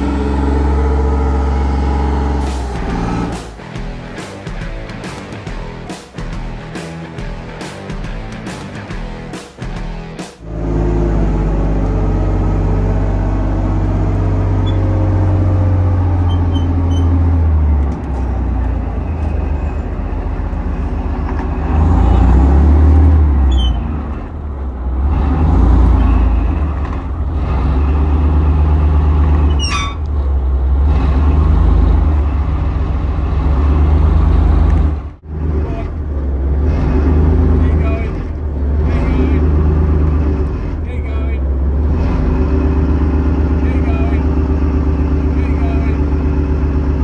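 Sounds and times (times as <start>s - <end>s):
tank engine revving: 0.0s - 47.0s
high squeal: 14.6s - 15.0s, 16.2s - 17.4s, 18.8s - 22.3s, 23.4s - 24.0s, 29.4s - 30.1s.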